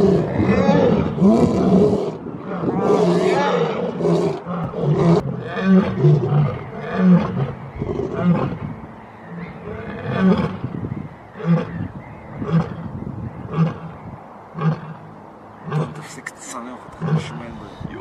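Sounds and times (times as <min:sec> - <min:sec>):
lion grunting calls: 0:15.6 - 0:17.8.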